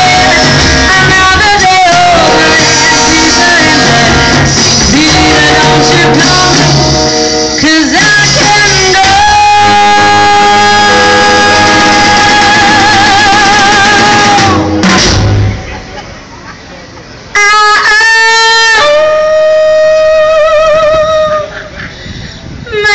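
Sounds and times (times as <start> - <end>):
swing band playing: 0.0 - 16.6.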